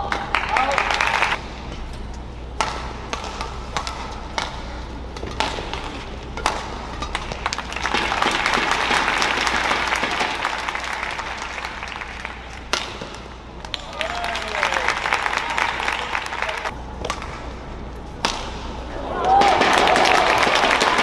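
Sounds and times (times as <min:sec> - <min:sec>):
crowd cheering and clapping: 0:00.0 - 0:01.4, 0:07.4 - 0:12.6, 0:13.6 - 0:16.7, 0:19.0 - 0:21.0.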